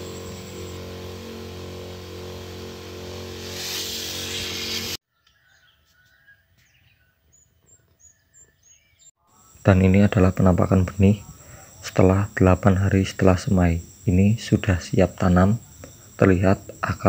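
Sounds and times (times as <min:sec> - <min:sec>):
spray hissing from nozzle: 0:00.0 - 0:05.0
sprayer motor hum: 0:00.0 - 0:05.0
faint bird chirps: 0:05.1 - 0:13.0.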